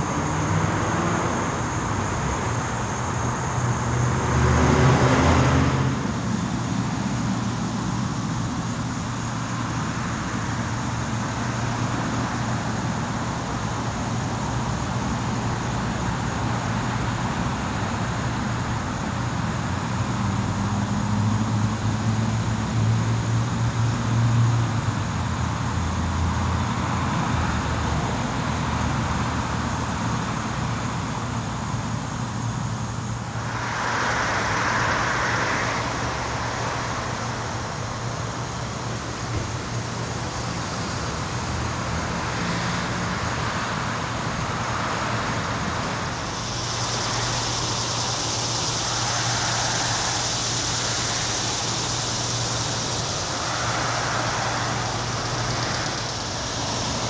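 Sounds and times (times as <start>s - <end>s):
high-pitched hiss: 0.0s - 57.0s
road traffic noise: 0.0s - 57.0s
vehicle passing: 4.0s - 6.1s, 33.3s - 37.7s, 44.8s - 57.0s.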